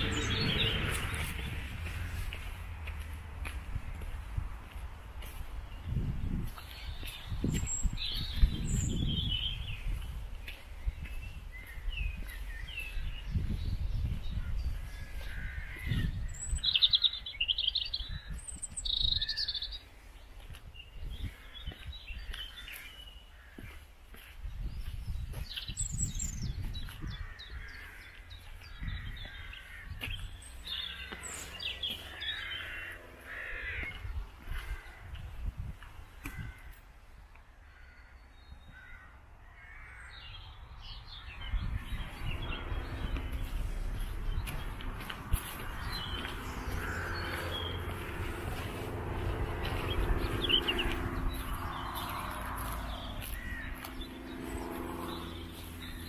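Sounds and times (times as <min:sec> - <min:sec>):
birds chirping and trilling: 0:00.0 - 0:56.0
uneven low rumble: 0:41.5 - 0:56.0.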